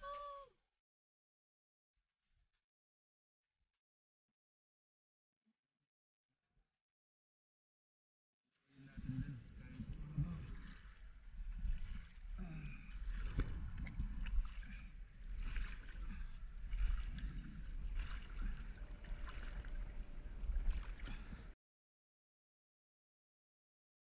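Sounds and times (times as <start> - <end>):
low rumble of moving water: 8.6 - 21.6
water sloshing and lapping: 8.7 - 21.6
splashes from hand strokes: 10.1 - 21.6.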